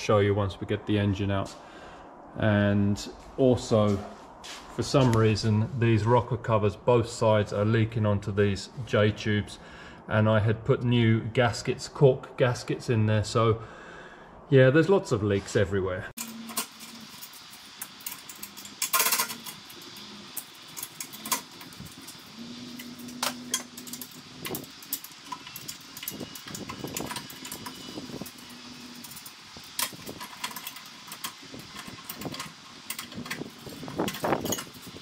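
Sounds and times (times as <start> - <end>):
hand tools clinking on metal: 16.2 - 35.0.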